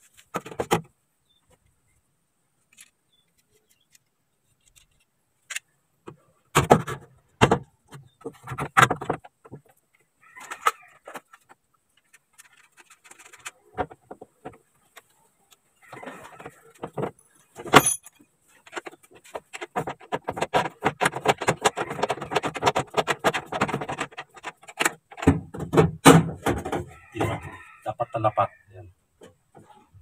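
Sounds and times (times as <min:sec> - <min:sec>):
metal parts clinking and rattling: 0:17.7 - 0:18.2.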